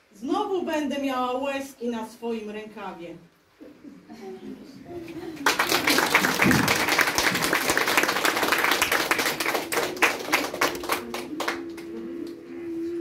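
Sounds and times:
audience applause: 5.3s - 12.0s.

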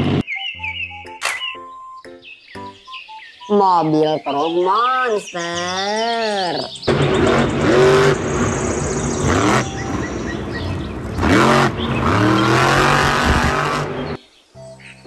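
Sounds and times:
truck engine revving: 6.9s - 14.2s.

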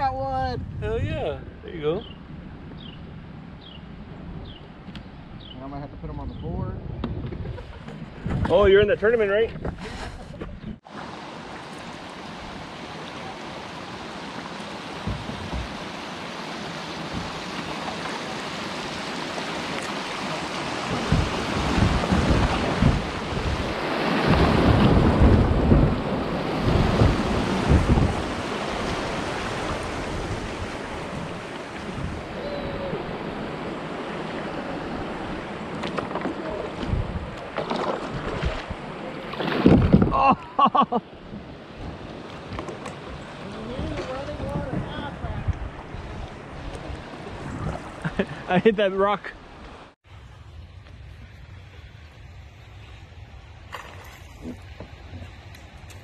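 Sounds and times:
wind thumps on microphone: 0.1s - 1.3s, 6.2s - 10.9s, 15.0s - 16.0s, 17.0s - 17.7s, 20.7s - 33.6s, 35.0s - 40.2s, 41.3s - 48.0s
rushing river water: 10.8s - 50.6s.

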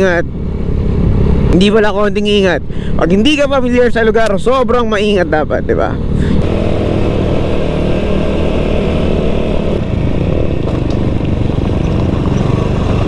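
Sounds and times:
small motorcycle engine running: 6.1s - 13.0s.

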